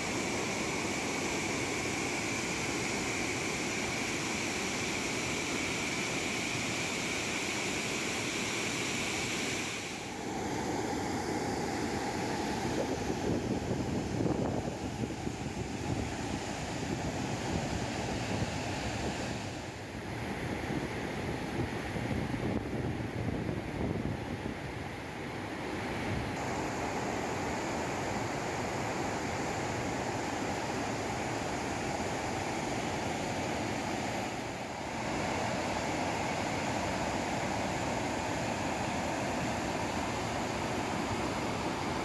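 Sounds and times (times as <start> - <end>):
water rushing over spillway: 25.5 - 42.0.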